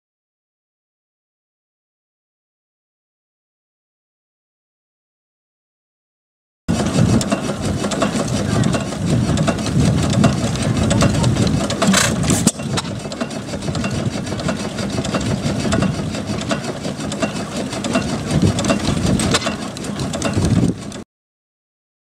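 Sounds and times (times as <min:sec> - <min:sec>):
stationary engine chugging: 0:06.7 - 0:21.0.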